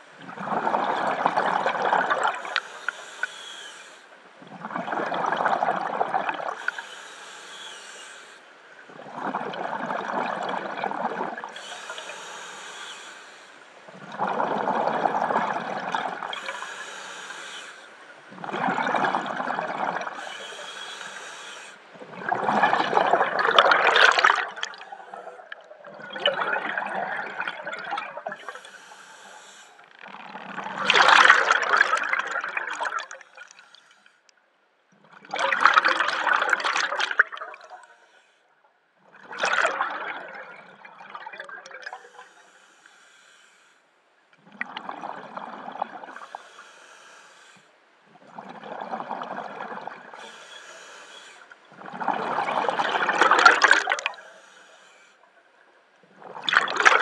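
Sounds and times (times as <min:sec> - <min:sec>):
diver breathing through regulator: 0:02.2 - 0:04.1, 0:06.5 - 0:08.5, 0:11.5 - 0:13.8, 0:16.3 - 0:18.0, 0:20.1 - 0:21.9, 0:28.3 - 0:30.0, 0:41.9 - 0:44.0, 0:46.1 - 0:47.8, 0:50.1 - 0:51.6, 0:53.4 - 0:55.2
bubbling exhalations: 0:22.0 - 0:28.6, 0:30.0 - 0:33.5, 0:51.8 - 0:54.2.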